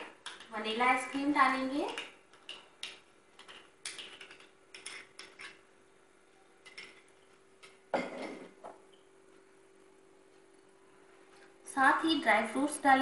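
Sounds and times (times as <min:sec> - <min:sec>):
utensils tapping glassware: 0:01.9 - 0:05.6, 0:06.6 - 0:09.0.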